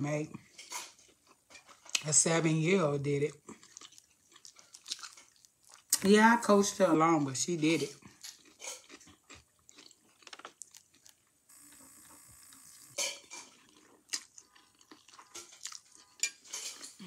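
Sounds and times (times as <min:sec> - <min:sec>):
wet chewing sounds: 0:03.4 - 0:06.1, 0:08.0 - 0:17.0.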